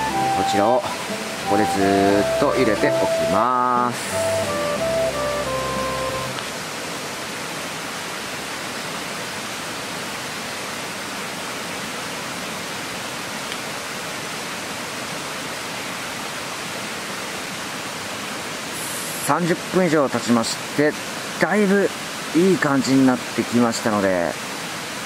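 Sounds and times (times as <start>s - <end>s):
held music notes: 0.0s - 6.5s.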